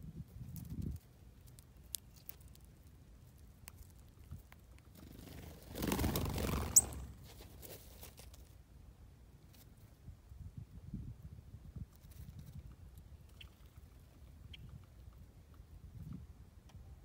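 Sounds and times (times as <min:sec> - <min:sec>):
bird wingbeats whirring: 0:05.0 - 0:07.3.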